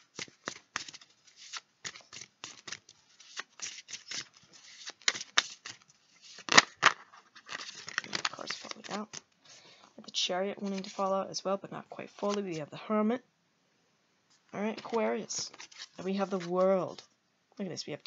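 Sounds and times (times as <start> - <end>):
cards being shuffled: 0.0 - 9.3, 10.6 - 11.1, 12.1 - 12.6, 14.6 - 17.1.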